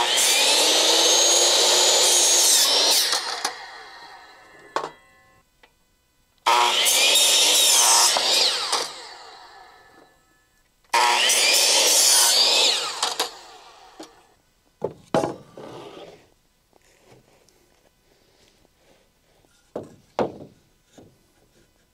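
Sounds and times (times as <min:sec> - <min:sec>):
miter saw cutting wood: 0:00.0 - 0:04.8, 0:06.4 - 0:10.1, 0:10.9 - 0:14.2
wooden board knocks: 0:14.8 - 0:15.4, 0:19.8 - 0:21.1.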